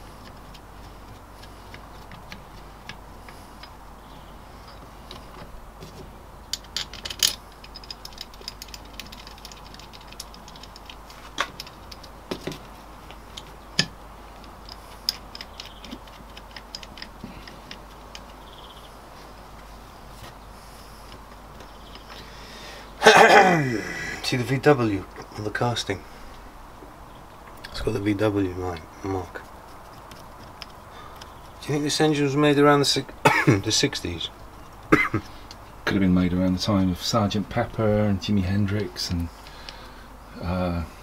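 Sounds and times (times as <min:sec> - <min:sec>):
metal parts clicking and clinking: 0:06.4 - 0:12.7, 0:13.3 - 0:18.7.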